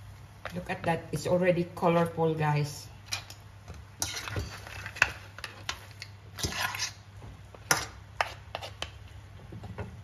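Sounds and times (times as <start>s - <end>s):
utensil scraping: 4.0s - 7.1s.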